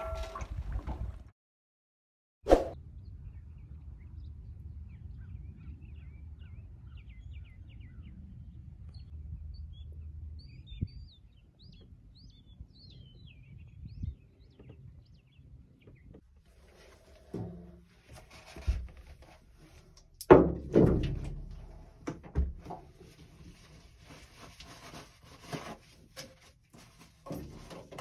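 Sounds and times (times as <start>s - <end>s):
small birds chirping: 3.3s - 16.3s.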